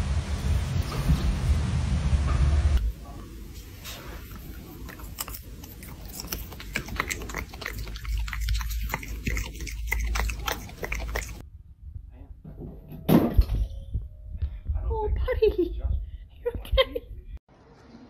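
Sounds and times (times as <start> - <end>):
raccoon chewing food: 3.6 - 11.4.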